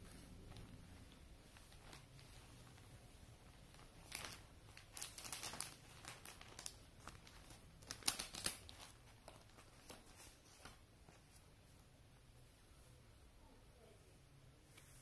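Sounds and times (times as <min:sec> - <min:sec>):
plastic bag crinkling: 0:00.2 - 0:10.8.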